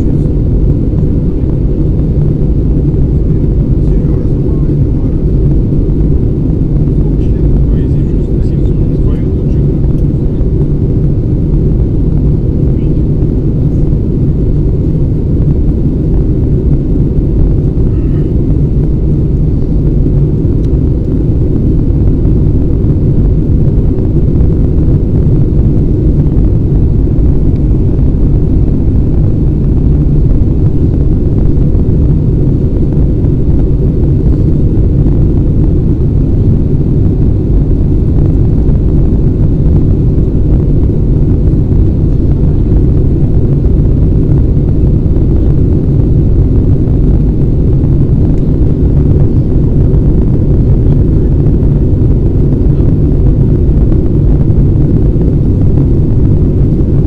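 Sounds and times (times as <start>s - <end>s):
airplane engines rumbling: 0.0s - 57.0s
rushing airflow: 0.0s - 57.0s.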